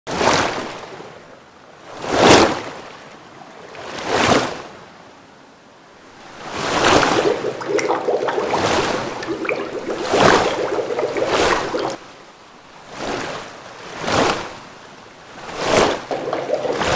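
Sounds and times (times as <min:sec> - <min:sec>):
surf waves washing in: 0:06.3 - 0:14.6, 0:15.3 - 0:16.9.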